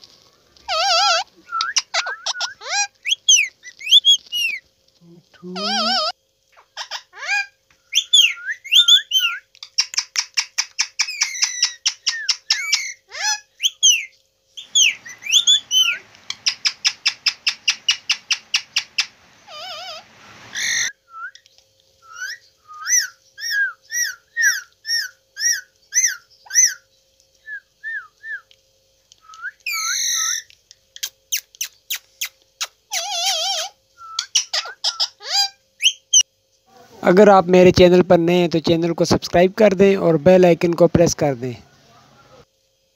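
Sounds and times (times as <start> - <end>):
harsh parakeet calls: 0.6 - 4.7, 5.4 - 21.0, 22.1 - 26.9, 29.6 - 36.2
parakeet whistling and chirping: 0.7 - 4.6, 6.8 - 21.4, 22.0 - 26.8, 29.2 - 30.5, 32.9 - 36.2.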